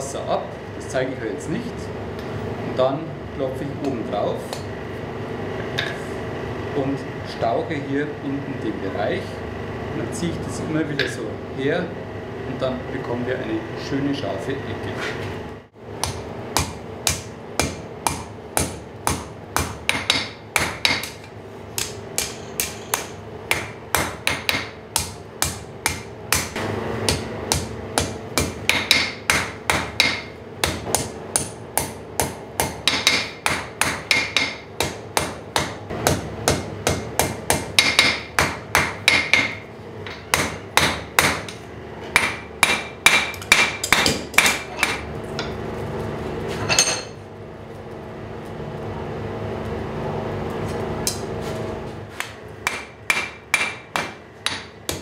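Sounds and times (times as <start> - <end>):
hammer striking steel on anvil: 16.0 - 45.6, 52.2 - 55.0.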